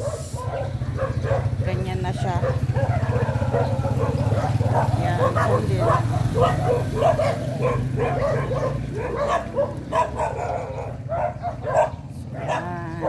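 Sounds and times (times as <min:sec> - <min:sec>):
dog yapping and whining: 0:02.4 - 0:12.7.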